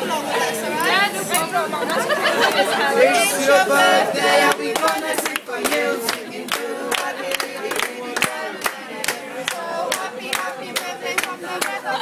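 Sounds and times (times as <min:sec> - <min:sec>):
group of voices chanting: 0:02.8 - 0:12.0
rhythmic hand-clapping: 0:04.4 - 0:12.0.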